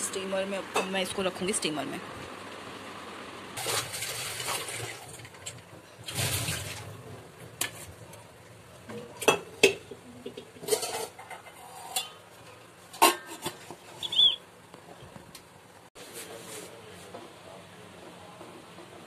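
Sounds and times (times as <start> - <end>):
steel pot lid clanking: 8.9 - 13.6.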